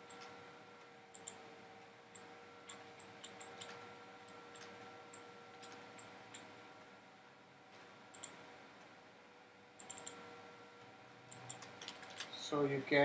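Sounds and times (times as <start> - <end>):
computer mouse clicks: 0.0 - 0.4, 1.1 - 1.5, 2.1 - 6.5, 7.8 - 8.4, 9.8 - 10.2, 11.3 - 12.4
low steady hum: 0.0 - 13.0.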